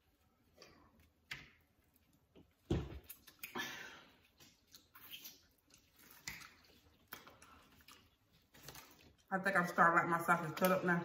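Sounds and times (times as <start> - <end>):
chewing: 4.2 - 9.3
plastic-gloved hands handling food: 4.5 - 10.7.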